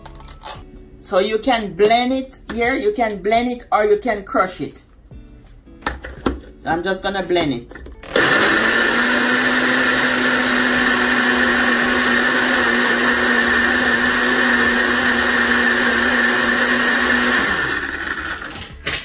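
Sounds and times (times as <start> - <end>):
blender motor whirring: 8.0 - 18.7.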